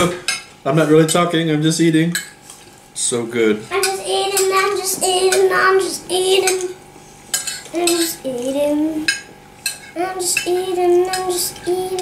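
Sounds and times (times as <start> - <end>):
young child singing: 3.7 - 6.8, 7.7 - 9.1, 10.0 - 12.0
spoons clinking on plates: 7.3 - 8.2, 9.1 - 11.7.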